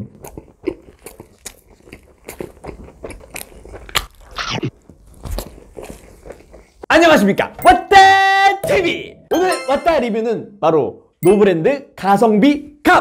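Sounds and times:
crunchy chewing of pizza: 0.0s - 6.9s.

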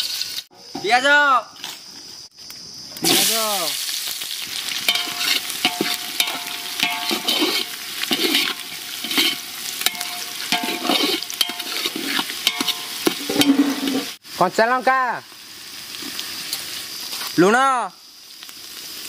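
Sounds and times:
onions sizzling in oil: 0.0s - 0.5s, 3.0s - 19.0s
metal ladle scraping pot: 4.9s - 14.2s.

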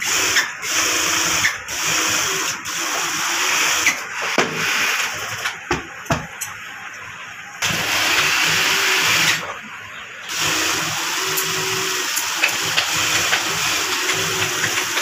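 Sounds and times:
industrial sewing machine stitching: 0.0s - 5.4s, 7.6s - 9.4s, 10.3s - 15.0s.

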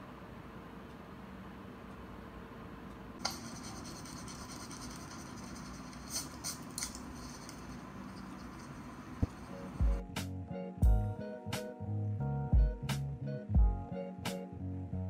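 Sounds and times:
pen scratching on paper: 3.2s - 8.8s.

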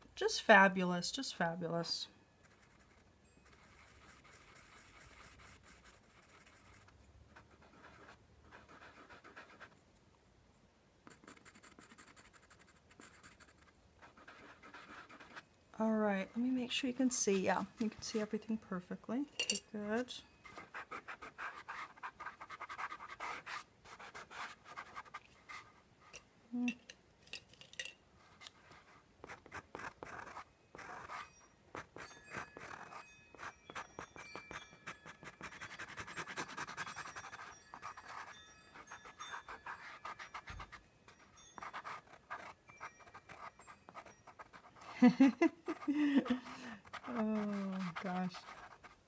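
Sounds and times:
pencil scratching on paper: 2.4s - 9.8s, 11.1s - 15.4s, 20.0s - 25.8s, 28.2s - 40.8s, 41.6s - 44.9s, 45.7s - 49.0s.

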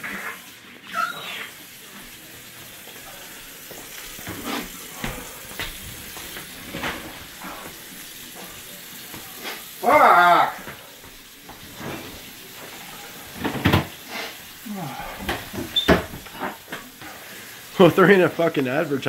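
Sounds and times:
short wordless vocal cry: 9.8s - 10.7s
tap running into sink: 13.3s - 14.0s.

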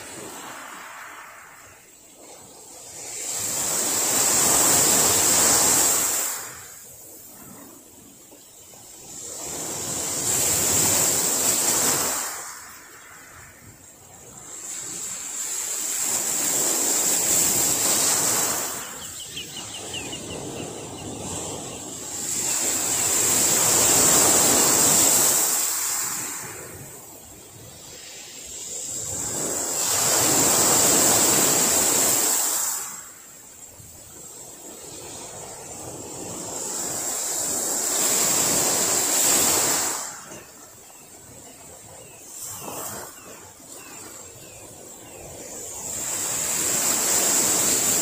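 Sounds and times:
waves washing on gravel beach: 0.0s - 19.4s, 20.3s - 48.0s.

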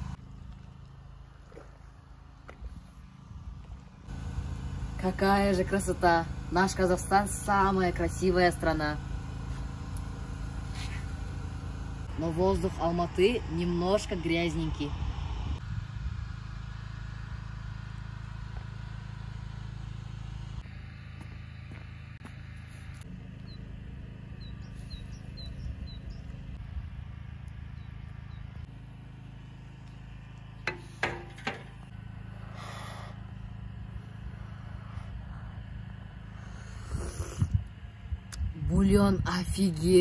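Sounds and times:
low rumble: 14.8s - 39.8s.

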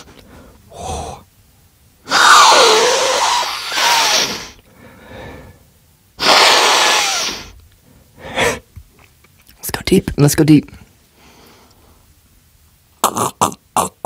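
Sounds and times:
loud slurping sips: 6.2s - 7.5s.

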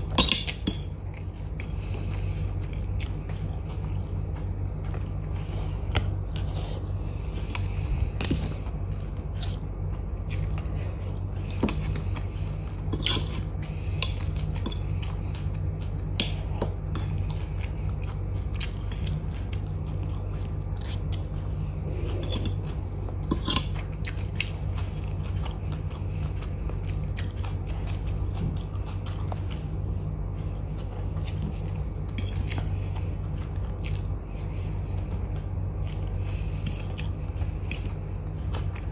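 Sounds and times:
chewing noodles: 0.0s - 38.9s
low hum: 0.0s - 38.9s.

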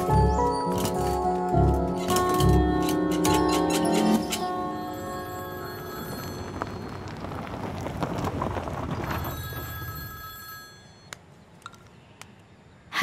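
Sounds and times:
mobile phone ringtone: 0.0s - 6.8s, 9.3s - 11.1s
street traffic: 0.1s - 12.6s.

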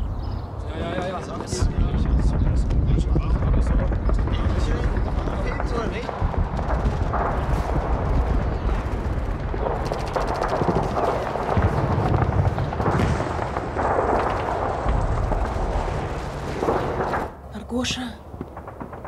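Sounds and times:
artillery explosions booming: 0.5s - 17.5s, 18.2s - 19.0s
continuous gunfire: 0.8s - 17.4s, 18.3s - 19.0s.

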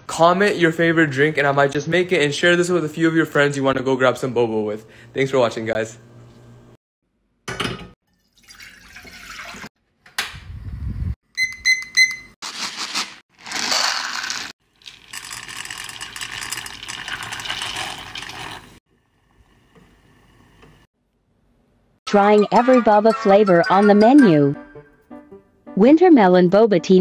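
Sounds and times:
water pouring: 8.1s - 9.7s, 14.0s - 19.6s
quick beeps: 11.4s - 12.3s.

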